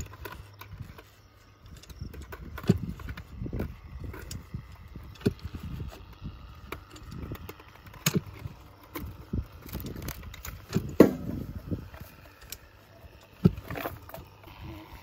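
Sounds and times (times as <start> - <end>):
wooden post knocking and scraping: 6.7 - 12.3.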